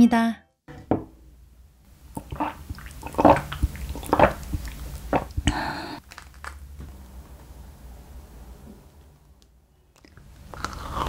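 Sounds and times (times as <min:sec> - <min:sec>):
person gulping milk: 0:02.1 - 0:06.6
breathy hiss: 0:02.3 - 0:06.0.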